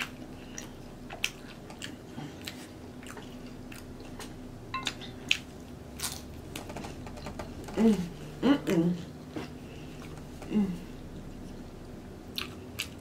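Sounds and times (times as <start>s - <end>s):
chewing with wet mouth clicks: 0.0s - 6.2s, 12.3s - 13.0s.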